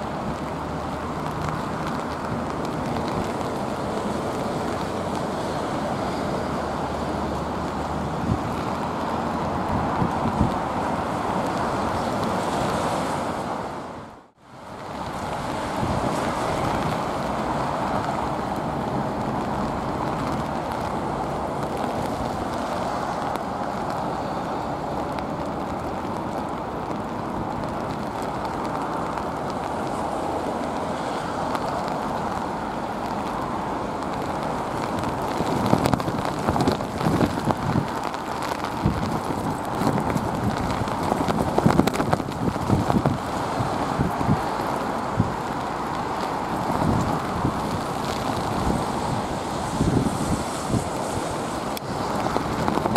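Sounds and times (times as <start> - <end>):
wind buffeting microphone: 0.0 - 14.1, 14.7 - 52.9
rain: 0.0 - 52.9.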